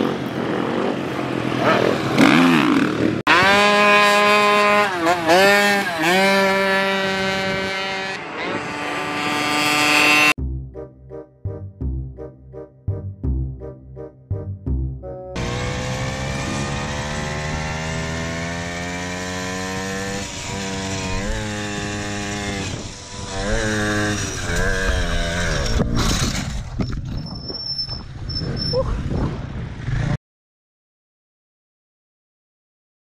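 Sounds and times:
small motorcycle engine revving: 0.0 - 10.4, 15.4 - 26.7.

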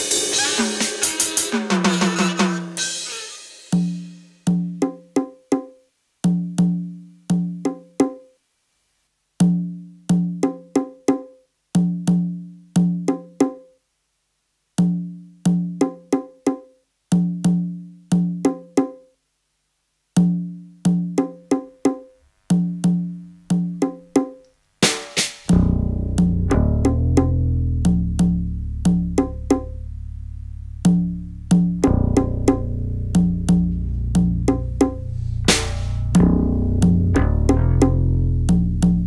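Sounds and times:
pitched percussion hits: 30.8 - 39.0.

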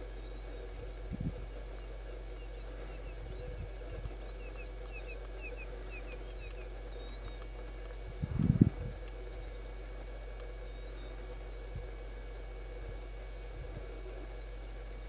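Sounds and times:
small bird chirping: 0.0 - 7.6
low knocking rumble: 0.0 - 15.0
steady low hum: 0.0 - 15.0.

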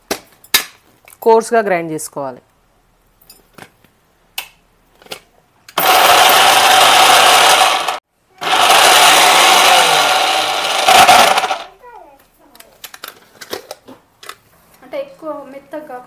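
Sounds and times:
mixer grinder motor running: 5.8 - 11.7.

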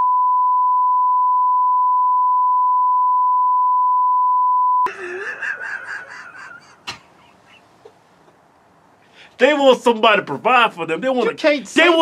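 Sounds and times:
censor bleep tone: 0.0 - 4.9
people laughing: 4.9 - 8.0
voices: 4.9 - 8.0, 9.4 - 12.0.

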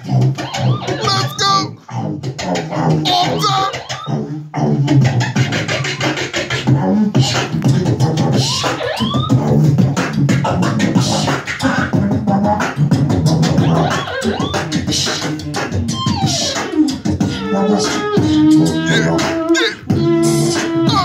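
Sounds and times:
beatbox kick and snare: 0.0 - 21.0
hummed bass line: 17.0 - 21.0
vocal scratch sweeps: 17.7 - 21.0.

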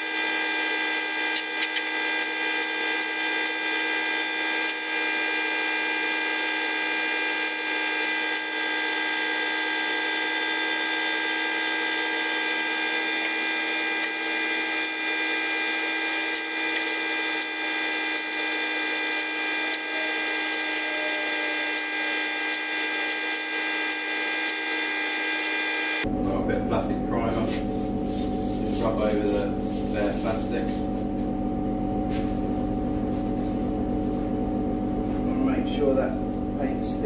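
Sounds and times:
steady machine hum: 0.0 - 37.0
masking tape and paper crackling: 1.0 - 4.9, 13.4 - 25.3.

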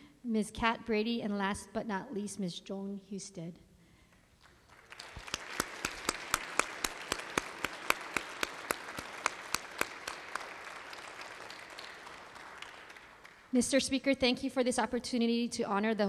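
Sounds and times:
nearby hands clapping: 4.1 - 13.6
crowd applauding: 4.4 - 13.6.

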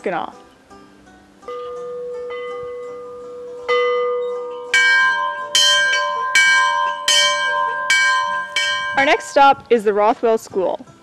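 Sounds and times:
bells ringing at different pitches: 1.5 - 9.8.

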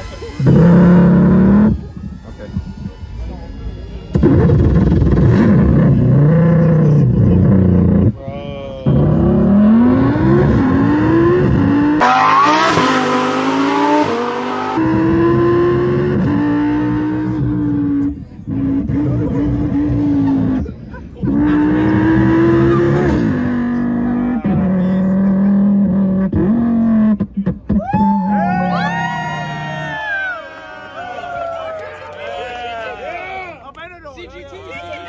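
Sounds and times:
man imitating race car engine: 4.2 - 16.5, 18.5 - 27.4.

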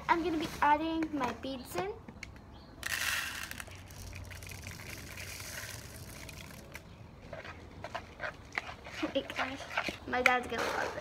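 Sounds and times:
plastic beads rattling into bowl: 2.8 - 6.8.

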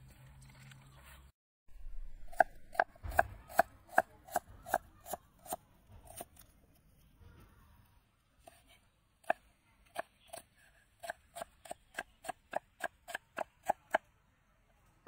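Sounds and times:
knife chopping on wooden board: 2.2 - 6.4.

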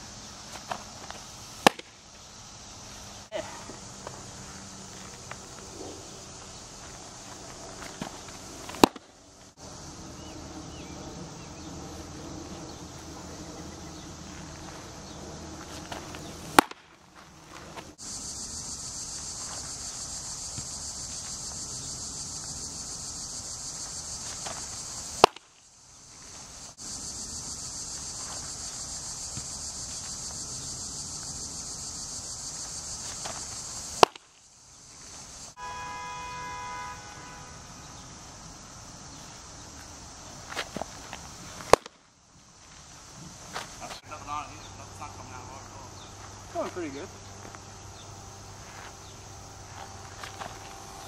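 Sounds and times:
insects droning: 0.0 - 51.0
baseball popping into a mitt: 0.5 - 2.0, 7.8 - 9.1, 15.6 - 16.9, 25.2 - 25.5, 33.1 - 34.3, 40.5 - 42.0.

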